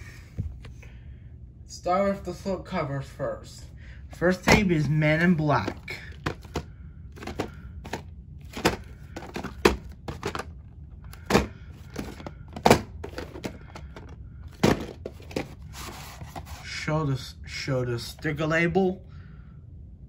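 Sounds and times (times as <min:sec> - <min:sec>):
tape case taps and knocks: 0:08.6 - 0:10.5.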